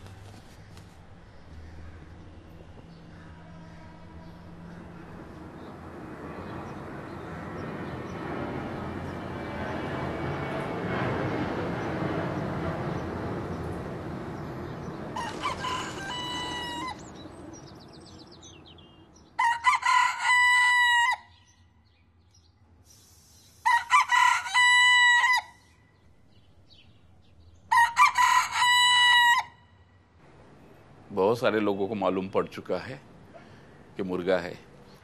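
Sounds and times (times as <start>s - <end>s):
rooster crowing: 15.1s - 17.2s, 19.3s - 21.4s, 23.6s - 25.7s, 27.7s - 29.7s.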